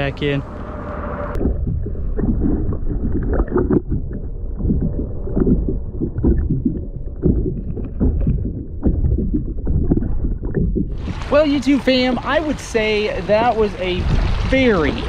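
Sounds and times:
water sloshing around kayak: 0:07.2 - 0:15.0.

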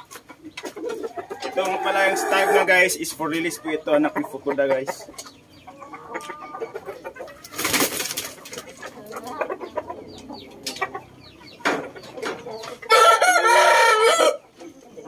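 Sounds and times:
soft bird calls and clicks: 0:00.0 - 0:01.8, 0:05.0 - 0:06.4, 0:07.2 - 0:12.8
rooster crowing: 0:01.2 - 0:02.7, 0:12.9 - 0:14.4.

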